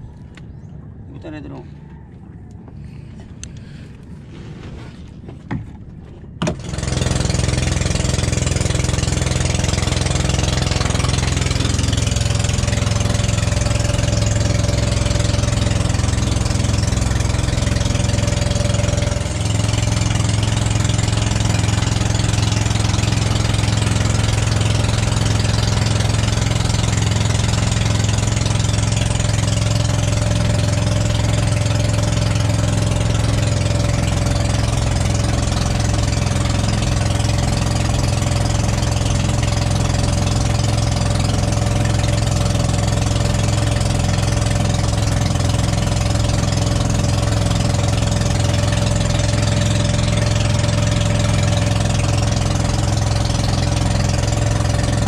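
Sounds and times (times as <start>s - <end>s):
boat engine droning: 0.0s - 55.0s.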